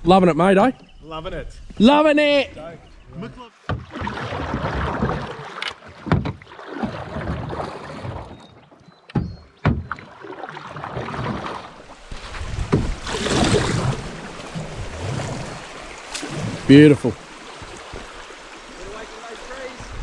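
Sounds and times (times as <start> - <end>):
paddles splashing in water: 3.1 - 20.0
sharp knocks: 3.7 - 4.2, 4.9 - 8.3, 9.1 - 10.1, 12.6 - 13.1.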